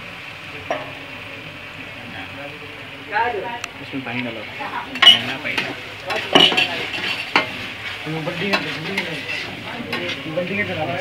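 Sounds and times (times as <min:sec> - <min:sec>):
food sizzling in oil: 0:00.0 - 0:11.0
spoon scraping a frying pan: 0:04.9 - 0:10.3.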